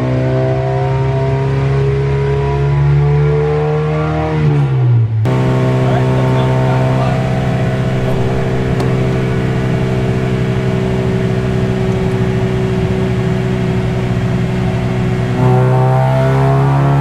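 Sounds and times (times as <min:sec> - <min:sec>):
race car engine revving on dyno: 0:05.3 - 0:17.0.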